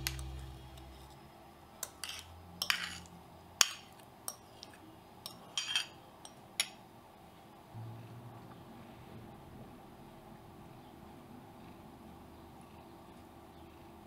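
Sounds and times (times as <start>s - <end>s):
spoon clinking against glass bowl: 1.8s - 6.8s.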